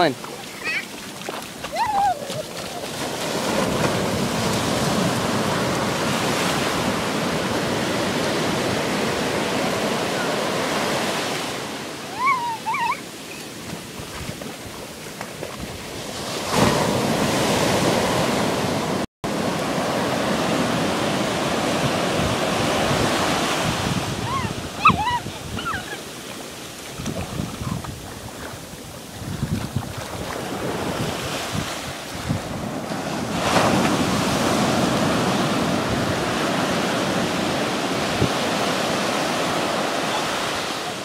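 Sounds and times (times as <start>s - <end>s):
surf washing over sand: 0.0s - 41.0s
children squealing: 12.1s - 13.4s, 24.2s - 26.0s.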